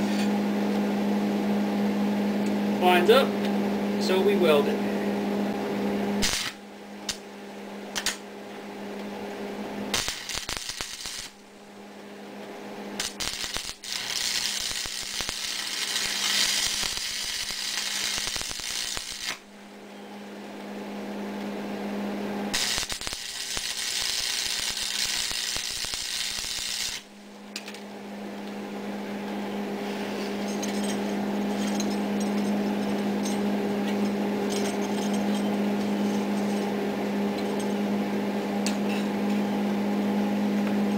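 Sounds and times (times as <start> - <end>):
steady hum: 0.0 - 40.9
welding arc crackling and hissing: 6.2 - 7.3, 9.8 - 11.6, 12.9 - 19.5, 22.5 - 27.2
welding rod strikes: 6.2 - 7.3, 7.9 - 8.2, 9.9 - 11.4, 13.0 - 19.4, 22.5 - 27.1.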